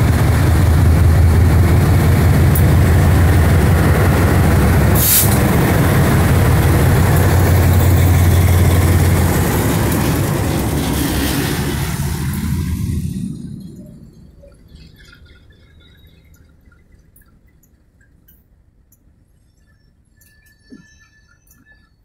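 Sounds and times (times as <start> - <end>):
diesel locomotives passing: 0.0 - 19.2
short sharp hiss: 5.0 - 5.4.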